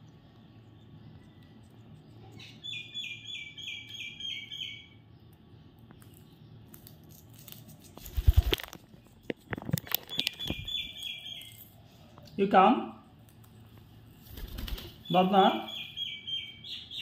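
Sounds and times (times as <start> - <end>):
parakeet calling: 2.4 - 5.0, 15.0 - 17.0.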